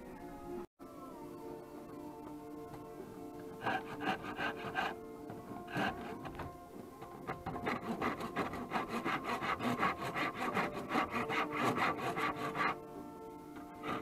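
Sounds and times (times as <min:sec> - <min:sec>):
hand rasp scraping wood: 0:03.6 - 0:12.8, 0:13.6 - 0:14.0.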